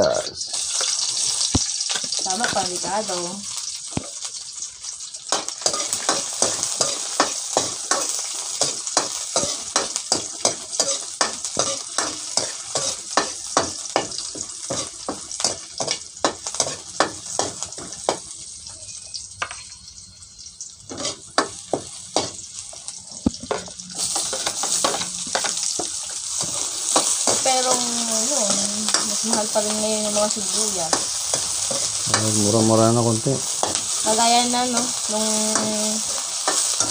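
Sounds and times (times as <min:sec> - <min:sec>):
food sizzling in hot oil: 0:00.0 - 0:36.9
metal ladle scraping a wok: 0:20.9 - 0:21.5.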